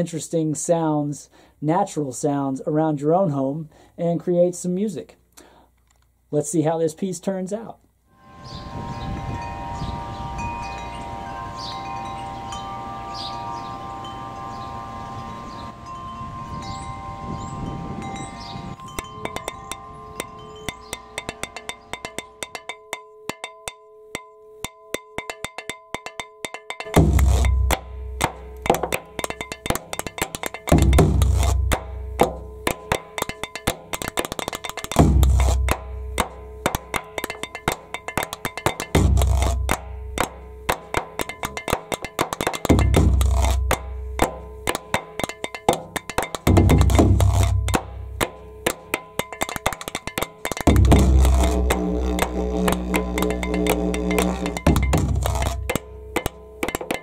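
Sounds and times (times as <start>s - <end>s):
steady held tone: 8.1s - 57.0s
metal wind chimes ringing: 8.2s - 57.0s
wind rumble on microphone: 8.3s - 11.8s, 14.5s - 21.0s
deep drum stroke: 25.2s - 57.0s
wooden sticks clicking together: 28.6s - 57.0s.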